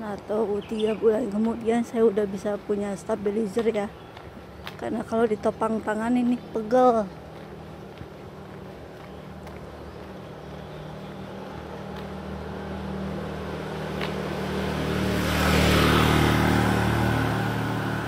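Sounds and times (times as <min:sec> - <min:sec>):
small motorcycle engine approaching: 0:10.9 - 0:18.0.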